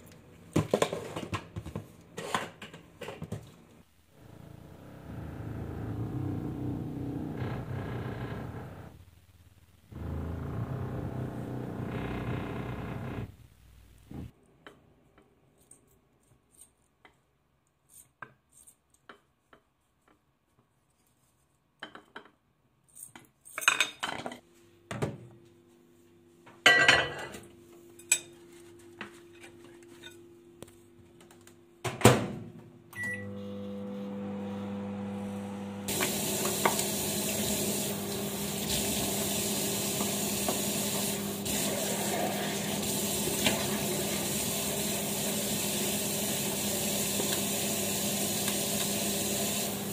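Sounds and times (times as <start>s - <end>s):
dishes clattering: 26.6s - 27.4s
microwave humming: 33.0s - 49.9s
kitchen tap running: 35.9s - 49.9s.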